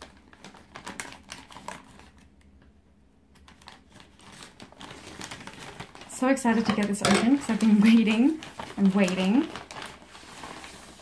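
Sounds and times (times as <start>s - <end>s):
plastic satchel crinkling: 0.0s - 2.3s, 3.4s - 11.0s.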